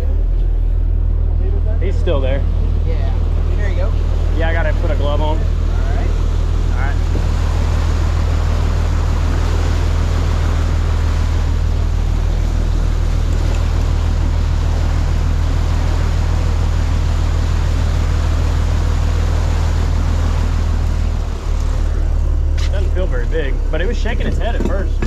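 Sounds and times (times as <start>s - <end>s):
boat engines humming: 0.0s - 25.0s
churning wake rushing: 0.0s - 25.0s
wind on microphone: 5.4s - 22.7s.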